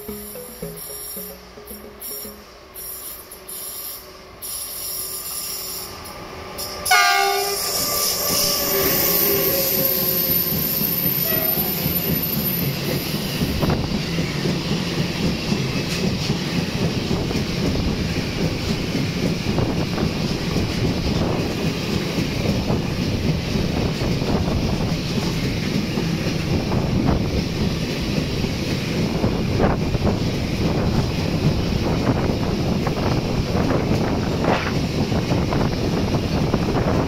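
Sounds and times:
clattering train wheels: 0.0s - 37.0s
train wagons rumbling: 6.0s - 37.0s
locomotive horn blast: 6.9s - 7.8s, 11.2s - 11.8s
high wheel squeal: 6.9s - 13.0s.

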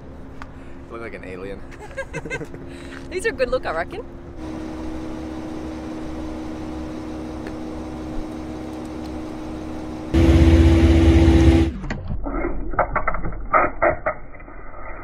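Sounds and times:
steady mechanical hum: 0.0s - 11.8s.

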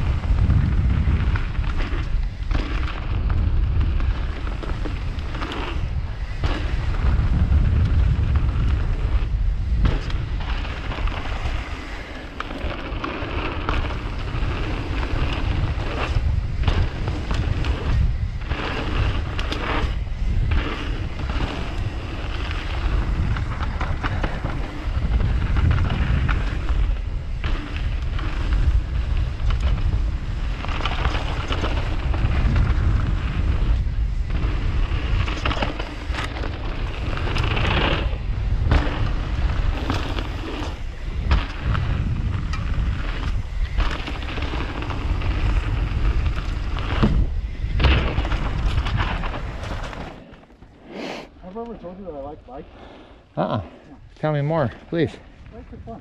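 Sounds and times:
bike clattering: 0.0s - 50.8s
tyres rumbling on dirt: 0.0s - 56.0s
wind buffeting microphone: 0.0s - 56.0s.

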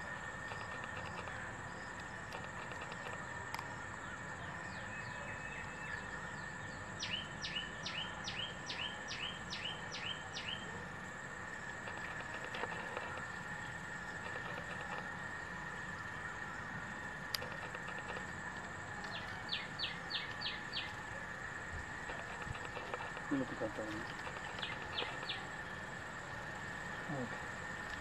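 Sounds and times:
insects buzzing: 0.0s - 28.0s.

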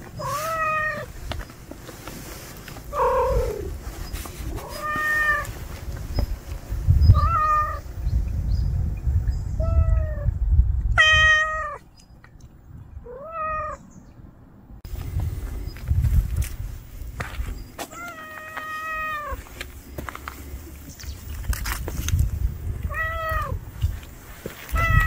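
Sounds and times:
cat meowing: 0.2s - 1.1s, 4.6s - 5.5s, 7.1s - 7.8s, 11.0s - 11.8s, 13.1s - 13.8s, 17.9s - 19.4s, 22.9s - 23.6s, 24.7s - 25.0s.

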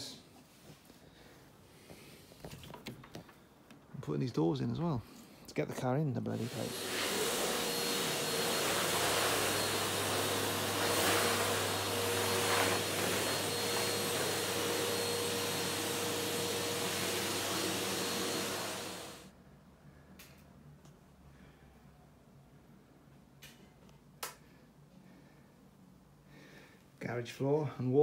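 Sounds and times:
vacuum cleaner running: 6.4s - 19.3s.

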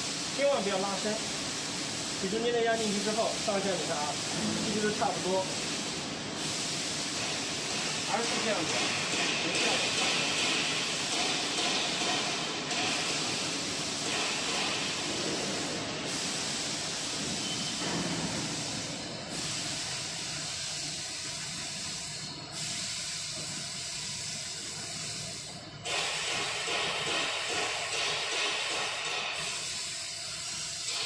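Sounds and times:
factory hall hissing: 0.0s - 31.0s
faint high whistle: 17.4s - 17.8s.

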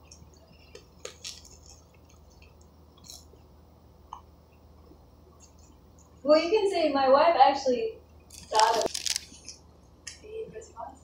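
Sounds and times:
person chewing wet mouth sounds: 0.0s - 3.5s.

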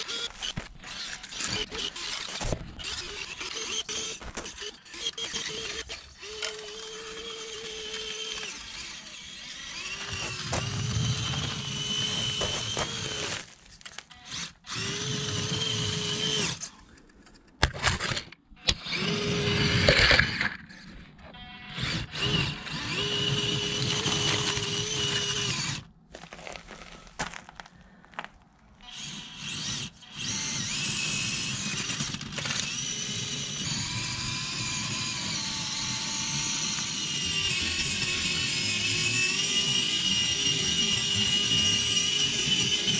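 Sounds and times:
small electric motors whining: 0.0s - 16.8s, 17.8s - 25.9s, 28.8s - 42.9s
tyres clattering on gravel: 10.0s - 14.1s, 26.1s - 28.4s.

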